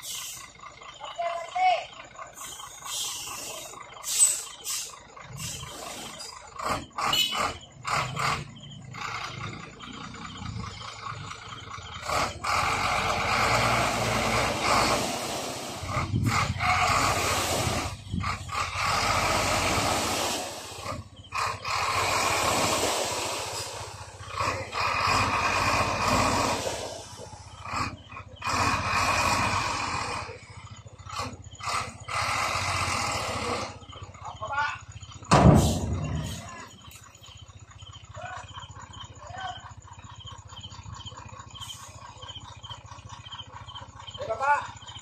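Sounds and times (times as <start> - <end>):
diesel engine running: 0.0 - 45.0
sand pouring out: 19.2 - 20.8, 21.9 - 24.0.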